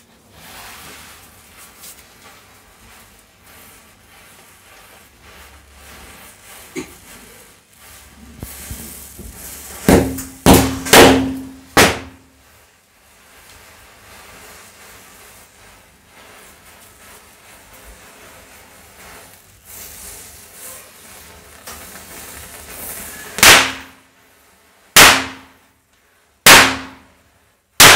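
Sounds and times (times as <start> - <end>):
firecracker bangs: 8.5 - 12.3, 23.2 - 24.0, 25.0 - 25.6, 26.4 - 27.1.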